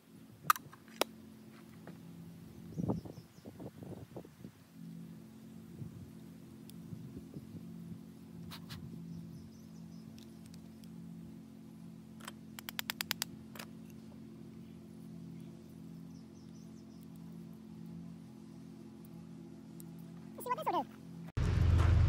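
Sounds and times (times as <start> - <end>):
steady low hum: 0.0 - 22.0
small sharp gun clicks: 12.2 - 14.0.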